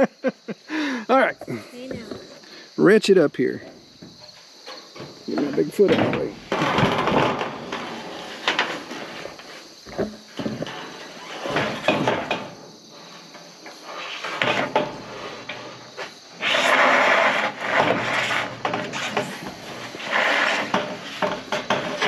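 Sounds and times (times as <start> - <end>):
metal sheet scraping on roof: 4.7 - 22.0
metal sheet knocking and rattling: 4.9 - 12.7, 17.6 - 22.0.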